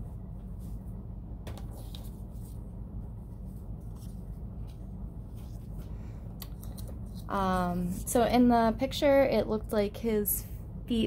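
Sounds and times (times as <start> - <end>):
steady low hum: 0.0 - 11.0
paper rustling and tapping: 1.4 - 2.5.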